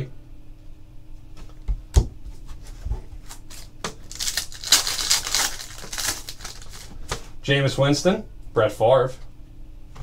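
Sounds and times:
foil wrapper tearing and crinkling: 0:03.4 - 0:07.0.

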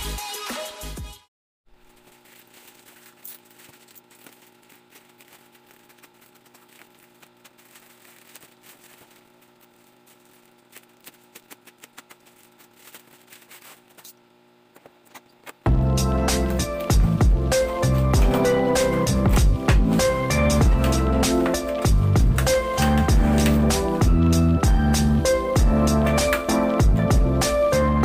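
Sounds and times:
plastic mailer bag crinkling: 0:01.7 - 0:14.2, 0:16.3 - 0:23.9
faint steady hum: 0:01.7 - 0:27.5.

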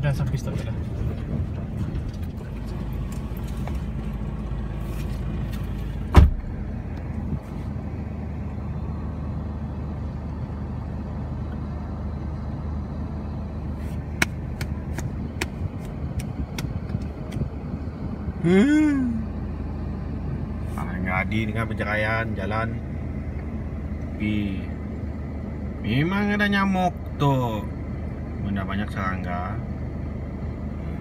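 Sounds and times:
car engine idling: 0:00.0 - 0:31.0
loud thump: 0:06.1 - 0:06.6.

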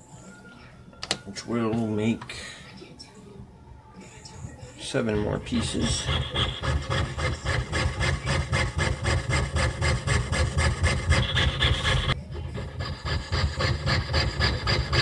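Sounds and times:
saw blade rasping through metal: 0:05.4 - 0:15.0.

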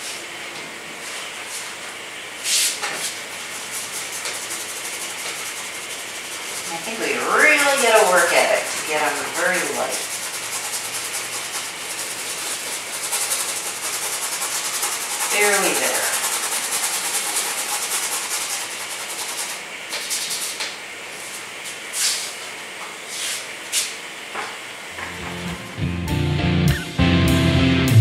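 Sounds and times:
paintbrush scrubbing canvas: 0:02.5 - 0:20.6.

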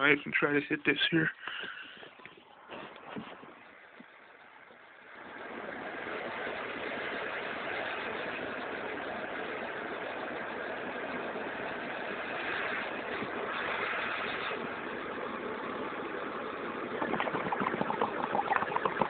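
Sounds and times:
butane torch hissing: 0:05.4 - 0:15.2.

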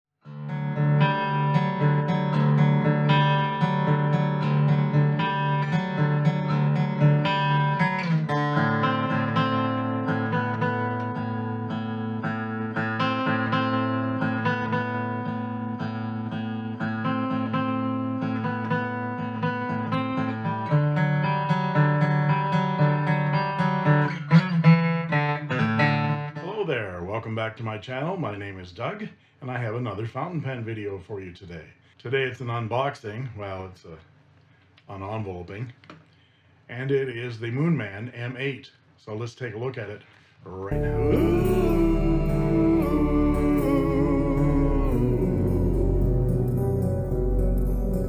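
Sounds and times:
acoustic guitar picked chords: 0:00.2 - 0:26.5, 0:40.7 - 0:48.0.

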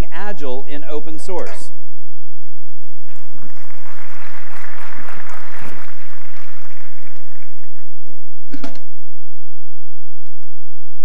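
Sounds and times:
audience applauding: 0:02.5 - 0:08.2.

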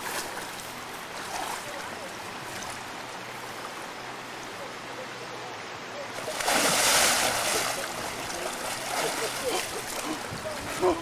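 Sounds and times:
shallow stream running: 0:00.0 - 0:11.0
loud splash into water: 0:06.3 - 0:07.8.

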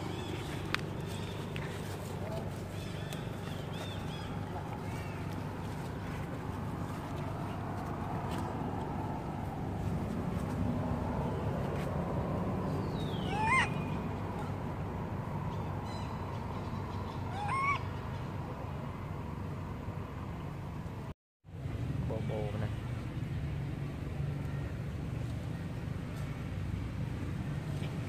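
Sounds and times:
outdoor background: 0:00.0 - 0:28.0
baby monkey coo calls: 0:13.0 - 0:14.0, 0:17.1 - 0:18.0.

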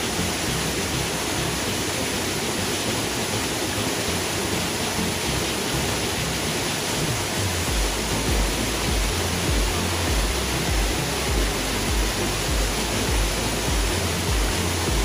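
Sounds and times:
waterfall rushing: 0:00.0 - 0:15.0
low rumble: 0:07.0 - 0:15.0.

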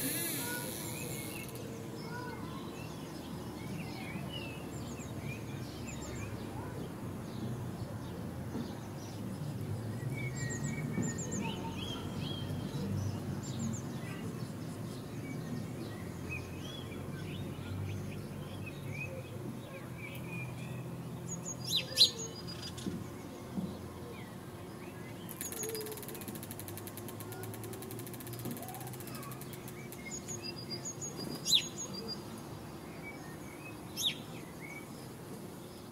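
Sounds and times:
songbirds chirping: 0:00.0 - 0:35.9.

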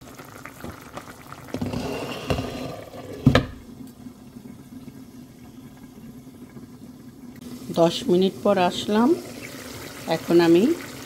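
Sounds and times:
curry bubbling in a pan: 0:00.0 - 0:03.0, 0:08.8 - 0:11.0.

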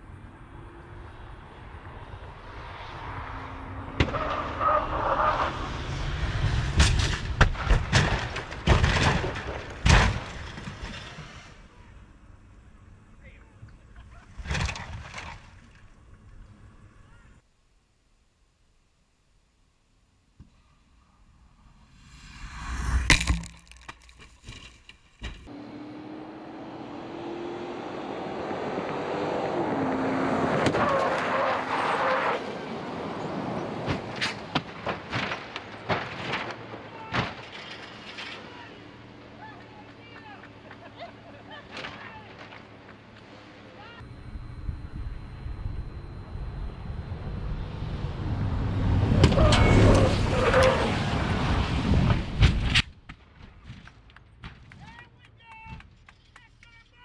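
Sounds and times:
tyre and road noise: 0:00.0 - 0:13.0, 0:21.2 - 0:56.4
car tumbling with sharp bangs: 0:06.6 - 0:11.6, 0:33.8 - 0:38.4
car crashing with sharp knocks: 0:06.8 - 0:11.2
car engine running at speed: 0:44.0 - 0:50.1.

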